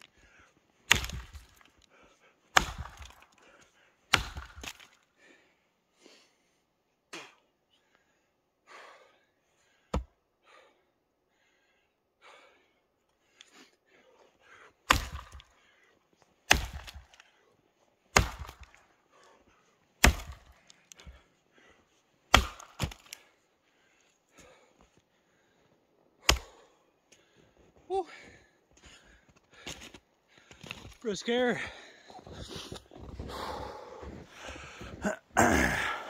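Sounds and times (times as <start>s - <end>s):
axe chopping log: 0.9s - 1.7s, 2.5s - 3.3s, 4.1s - 5.0s, 14.9s - 15.5s, 16.5s - 17.2s, 18.1s - 18.8s, 20.0s - 20.6s, 22.3s - 23.2s, 26.2s - 26.6s.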